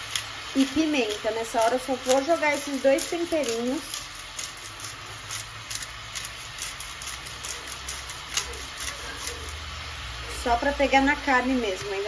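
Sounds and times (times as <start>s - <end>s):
food sizzling in hot oil: 0.0s - 12.0s
oil popping and crackling: 0.0s - 12.0s.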